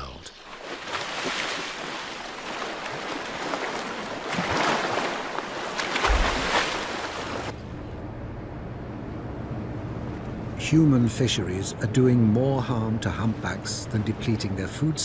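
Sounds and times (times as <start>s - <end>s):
sea water rushing and splashing: 0.0s - 7.6s
boat engine rumbling: 0.0s - 15.0s.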